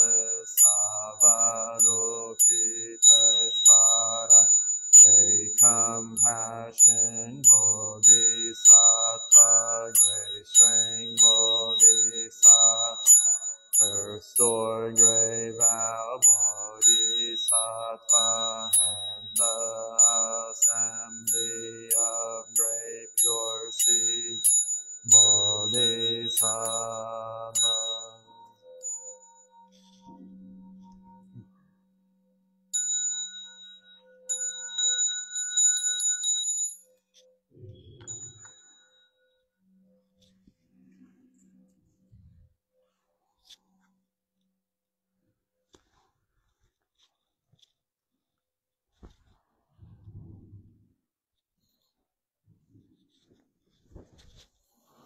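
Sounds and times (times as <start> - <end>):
monks chanting in unison: 0.0 - 4.3, 13.9 - 24.2, 25.1 - 28.1
high bright chiming beat: 0.0 - 30.4, 37.7 - 38.8
high ringing bell tone: 0.0 - 31.5, 32.7 - 40.3.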